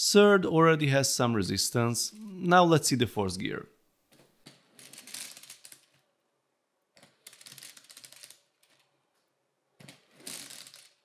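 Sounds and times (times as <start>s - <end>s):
plastic toy gears clattering: 4.6s - 6.0s, 9.9s - 11.0s.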